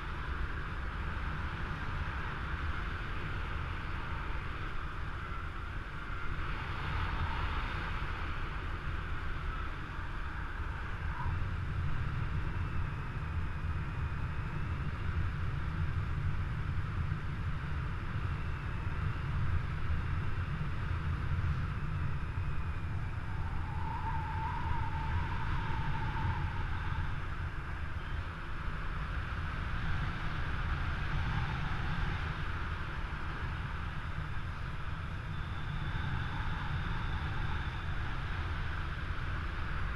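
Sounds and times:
wind rumbling on microphone: 0:00.0 - 0:39.9
faint wavering whistles: 0:06.1 - 0:08.2, 0:09.4 - 0:11.5, 0:22.6 - 0:28.4, 0:35.0 - 0:39.9.

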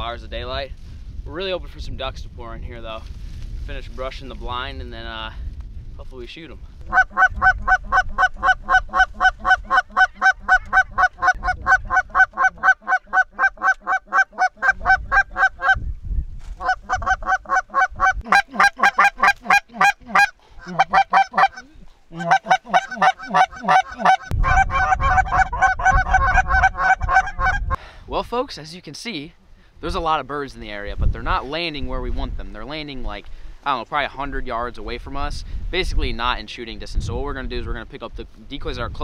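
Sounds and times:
geese honking: 0:06.9 - 0:15.8, 0:16.6 - 0:27.8.

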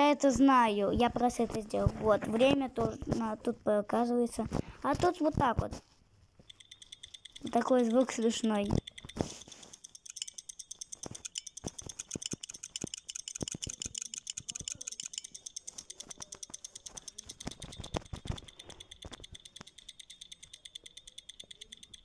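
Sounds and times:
stopwatch app ticking: 0:06.4 - 0:22.0
rapid taps on phone button: 0:06.5 - 0:22.0.

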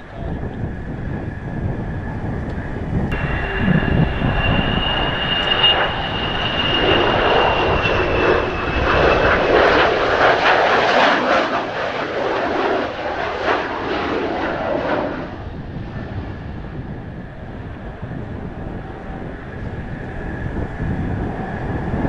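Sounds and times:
jet engine high whine: 0:00.0 - 0:22.0
wind buffeting microphone: 0:00.0 - 0:22.0
rushing jet noise: 0:01.0 - 0:17.2.

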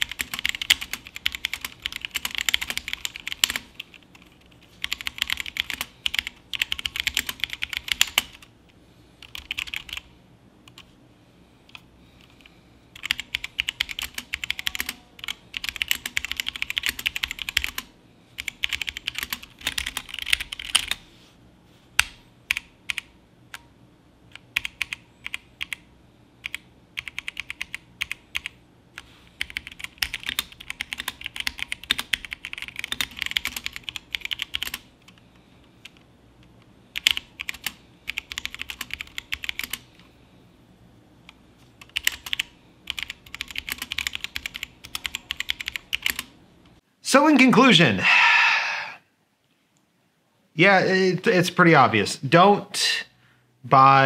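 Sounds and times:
mechanical keyboard typing: 0:00.0 - 0:08.5, 0:09.2 - 0:10.1, 0:13.0 - 0:21.0, 0:24.3 - 0:25.8, 0:26.4 - 0:28.6, 0:29.4 - 0:35.2, 0:37.0 - 0:39.8, 0:41.8 - 0:46.3.

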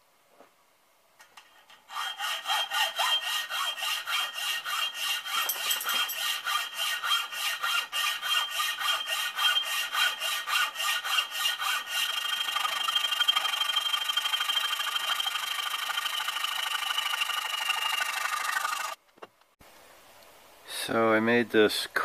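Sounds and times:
hacksaw cutting steel: 0:01.7 - 0:19.0.

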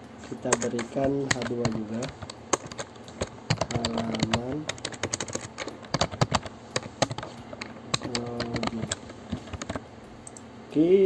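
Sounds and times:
person's voice: 0:00.3 - 0:05.0, 0:07.9 - 0:09.7
keyboard typing: 0:00.3 - 0:10.5.

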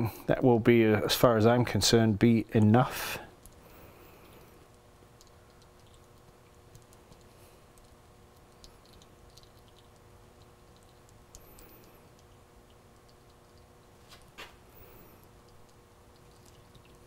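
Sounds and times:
faint room hum: 0:00.0 - 0:17.0
light ticks and clicks: 0:04.2 - 0:14.4.

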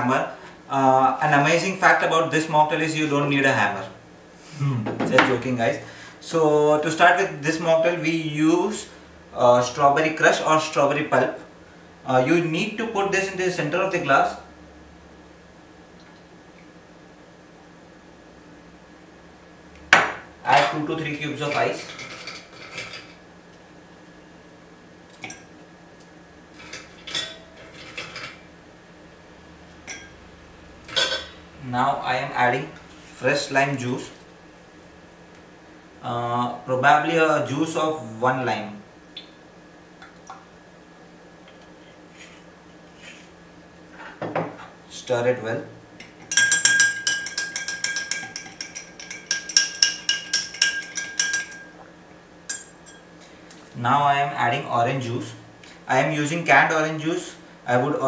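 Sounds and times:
spoon clinking ice in glass: 0:46.2 - 0:51.8.

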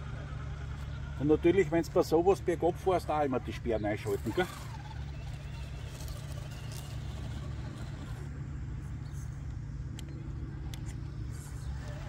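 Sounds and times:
electric motor whine: 0:00.0 - 0:12.0
low rumble of tyres on asphalt: 0:00.0 - 0:12.0.

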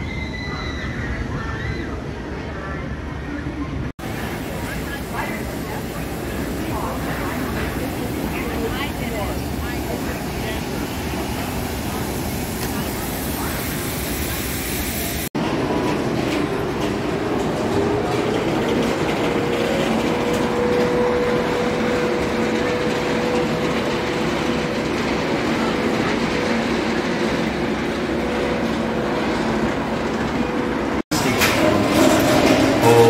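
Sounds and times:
roller coaster rumble: 0:00.0 - 0:33.0.

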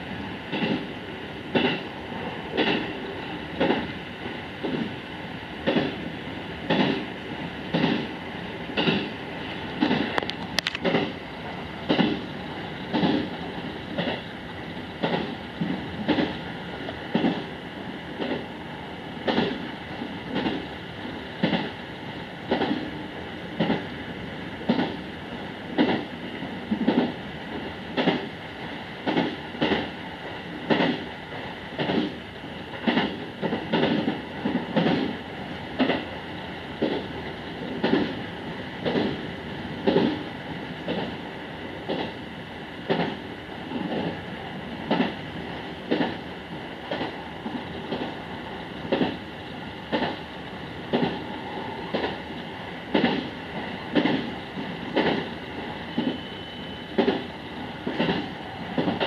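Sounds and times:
train running noise: 0:00.0 - 0:59.0
train wheels clattering over joints: 0:06.7 - 0:07.0, 0:08.8 - 0:09.1, 0:11.9 - 0:14.3, 0:52.9 - 0:53.3.

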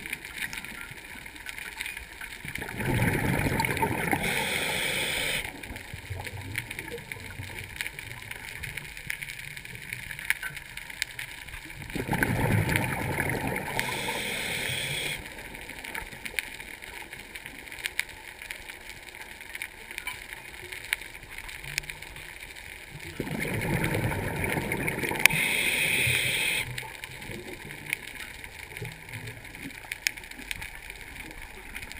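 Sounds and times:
faint steady crackle: 0:00.0 - 0:31.9
underwater bubbling bursts: 0:02.3 - 0:10.1, 0:11.5 - 0:16.6, 0:22.8 - 0:31.9.

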